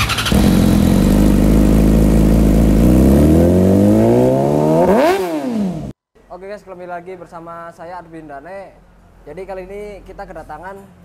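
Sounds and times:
motorcycle engine revving: 0.0 - 6.0.

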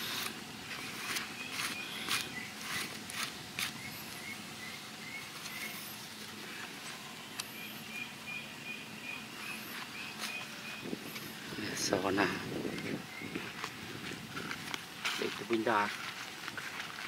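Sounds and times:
repeated high chirp: 7.4 - 11.2.

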